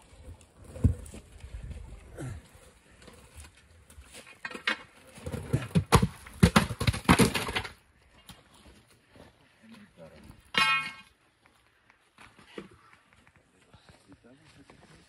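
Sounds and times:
boulder scraping over stones: 2.9 - 7.8.

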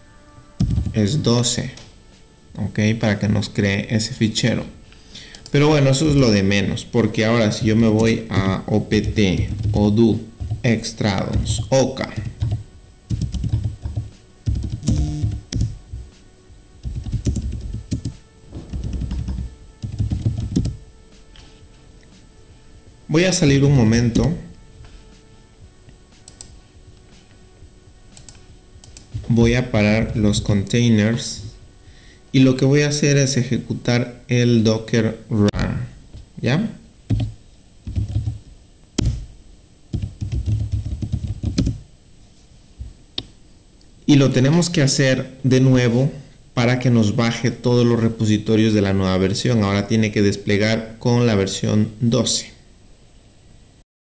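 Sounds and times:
computer keyboard typing: 0.6 - 1.0, 9.0 - 15.8, 16.8 - 20.8, 37.1 - 38.4, 39.9 - 41.8.

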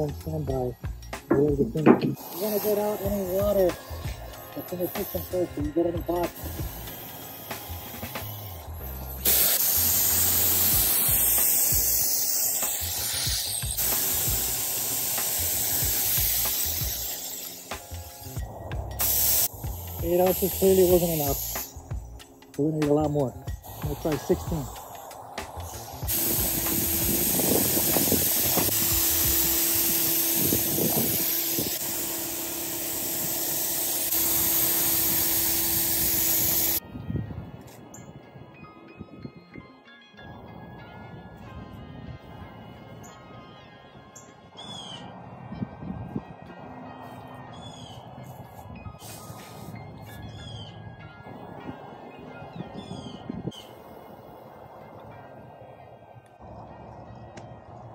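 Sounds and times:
spray gun hissing: 1.3 - 22.1, 23.6 - 36.8, 49.0 - 49.8.

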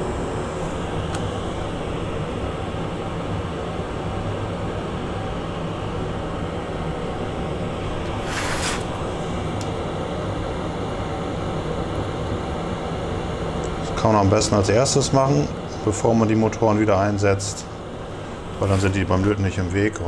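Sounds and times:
low electrical hum: 0.0 - 20.0
brief hiss: 8.2 - 8.9.

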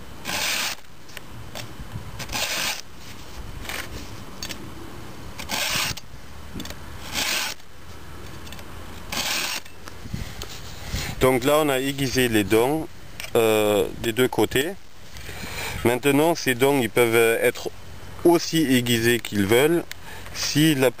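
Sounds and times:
file rasping on chainsaw chain: 0.2 - 0.8, 2.2 - 2.8, 5.4 - 6.0, 7.0 - 7.6, 9.1 - 9.8.

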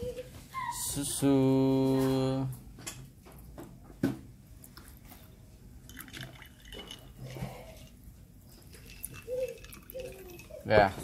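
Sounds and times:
milk trickling over ice: 4.6 - 10.8.

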